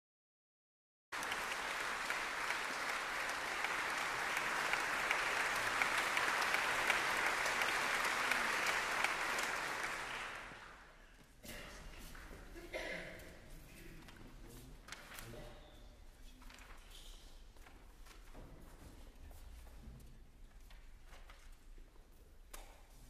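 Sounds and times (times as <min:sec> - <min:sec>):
audience applauding: 0:01.2 - 0:11.0.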